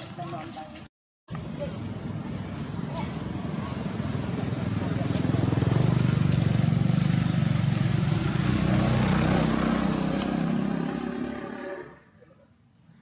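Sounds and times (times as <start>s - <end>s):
motorcycle engine running: 2.2s - 12.0s.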